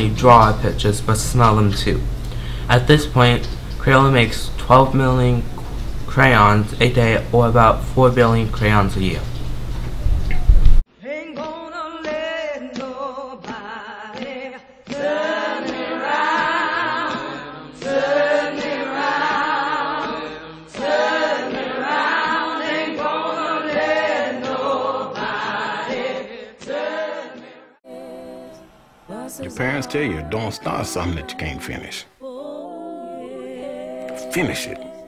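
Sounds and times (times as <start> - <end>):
choir singing: 14.9 - 35.0.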